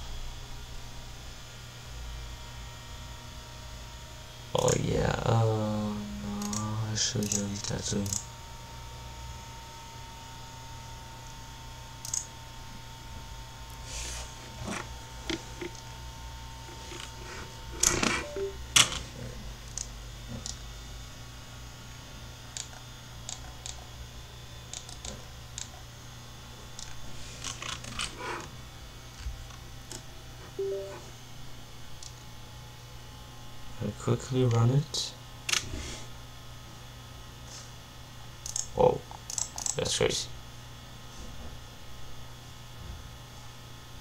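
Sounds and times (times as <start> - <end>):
computer mouse clicks: 6.4 - 6.6, 7.2 - 8.2, 12.0 - 12.3, 24.7 - 25.7, 38.4 - 38.7.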